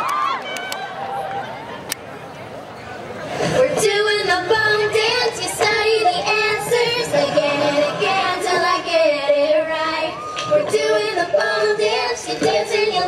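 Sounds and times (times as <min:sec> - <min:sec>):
song with high-pitched singing: 0:03.5 - 0:13.0.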